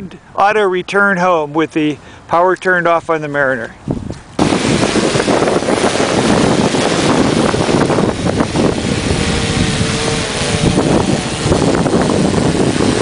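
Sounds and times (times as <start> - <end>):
wind buffeting microphone: 3.7 - 13.0
drone propellers whirring: 4.2 - 13.0.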